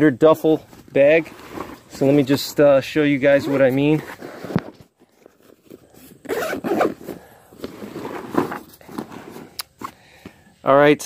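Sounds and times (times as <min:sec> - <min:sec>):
bag zipper being pulled shut: 0:05.6 - 0:09.9.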